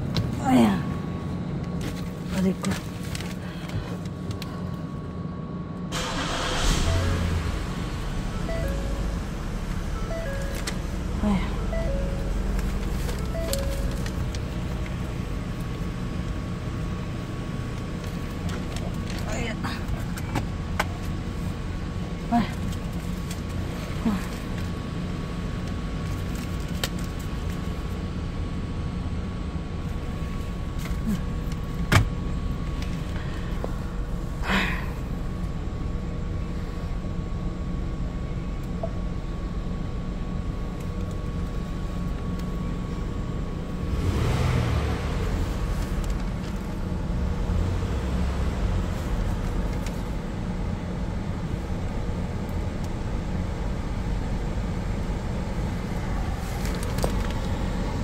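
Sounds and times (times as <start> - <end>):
car engine idling: 0.0 - 58.0.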